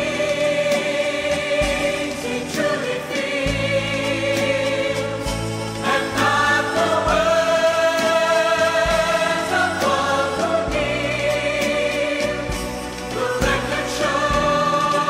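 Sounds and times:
steady bass: 0.0 - 15.0
voices singing with vibrato: 0.0 - 15.0.

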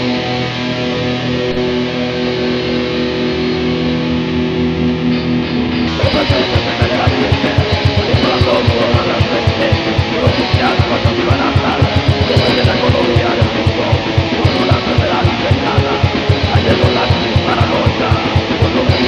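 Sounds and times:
distorted electric guitars riffing: 0.0 - 19.0
fast kick-drum beats: 5.9 - 19.0.

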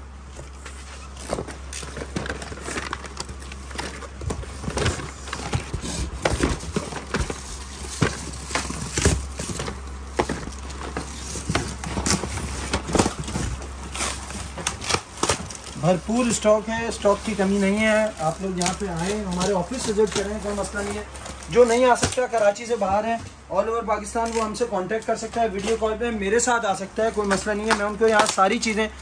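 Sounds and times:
steady low hum: 0.0 - 29.0
cardboard boxes knocking and scraping: 0.4 - 23.4.

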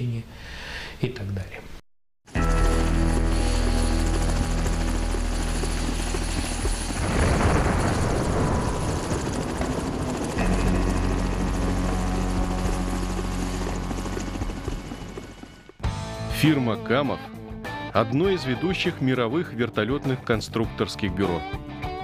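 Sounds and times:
helicopter rotors and engine: 2.3 - 15.9.

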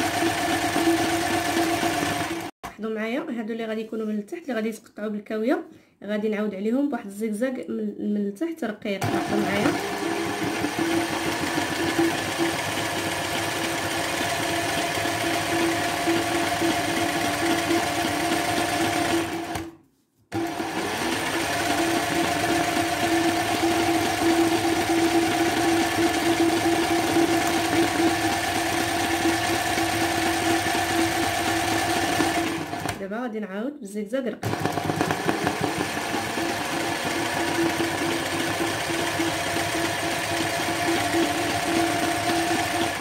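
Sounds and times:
sewing machine running: 0.0 - 2.5, 9.0 - 19.7, 20.4 - 33.0, 34.4 - 43.0.

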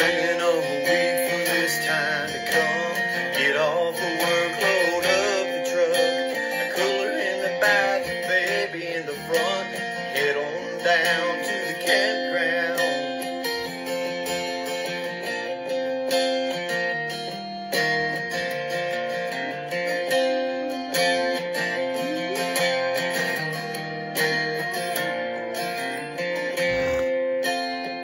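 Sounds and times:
strummed acoustic guitar: 0.0 - 28.0
wavering melody line: 18.2 - 27.1.

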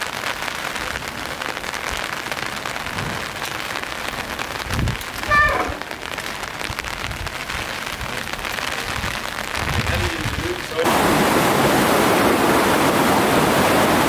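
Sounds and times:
rain hissing on street: 0.0 - 14.0
person's raised voice: 5.2 - 5.9.

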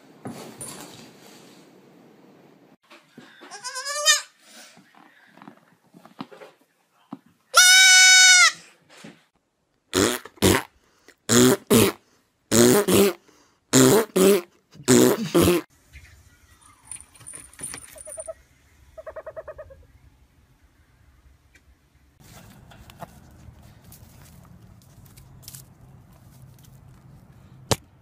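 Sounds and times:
goat kid bleating: 3.5 - 4.3, 7.6 - 8.6.

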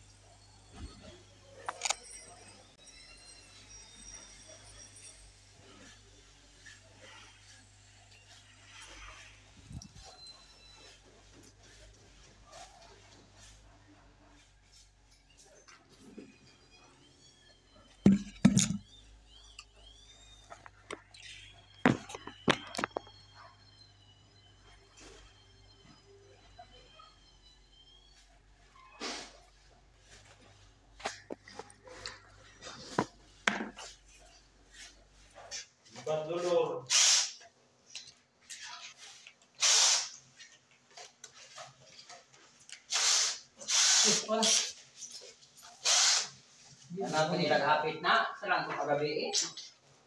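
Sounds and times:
faint high chirps: 14.2 - 29.3.

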